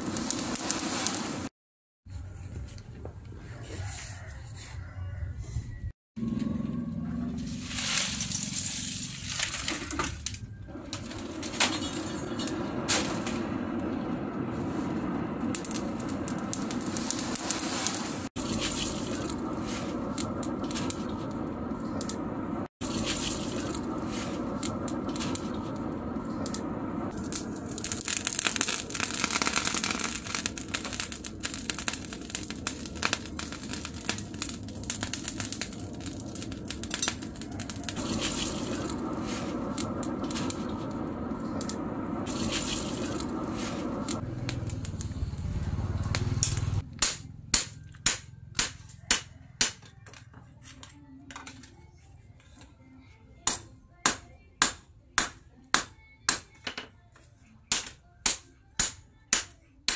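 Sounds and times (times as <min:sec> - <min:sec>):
charcoal pouring and rattling: 0:00.0 - 0:01.5, 0:07.4 - 0:13.5, 0:15.5 - 0:21.4, 0:22.8 - 0:25.8, 0:27.1 - 0:45.1
coals shifted with metal tongs: 0:00.0 - 0:01.5, 0:07.4 - 0:13.6, 0:15.4 - 0:22.2, 0:22.8 - 0:45.0, 0:46.1 - 0:48.7
steady low hum: 0:10.7 - 0:47.5.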